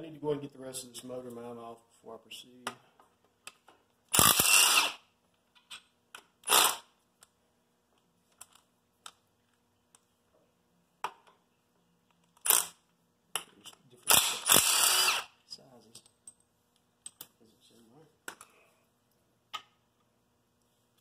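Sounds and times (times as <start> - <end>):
impact wrench spinning: 4.1 - 5.0, 6.4 - 6.9, 12.4 - 12.8, 14.1 - 15.4.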